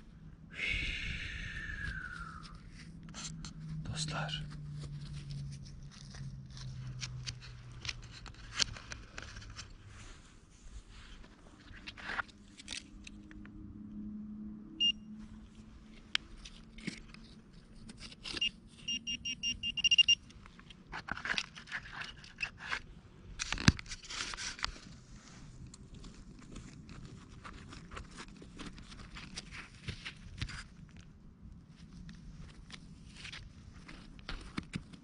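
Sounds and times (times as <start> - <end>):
metal detector beeping: 14.8 - 15.2, 18.3 - 20.3
soil and stones scraping: 20.5 - 30.8.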